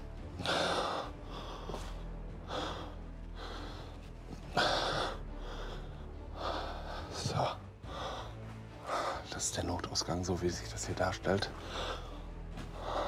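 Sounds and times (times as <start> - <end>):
person breathing: 0.4 - 9.3, 11.6 - 13.0.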